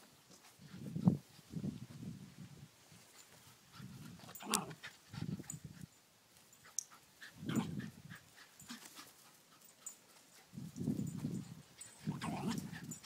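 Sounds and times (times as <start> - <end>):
dog huffing and yipping: 3.2 - 5.9, 6.6 - 13.0.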